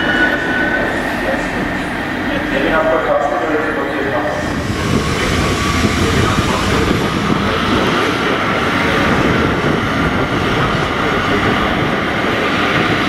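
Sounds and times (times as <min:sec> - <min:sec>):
diesel locomotive engine working hard: 0:00.0 - 0:13.0.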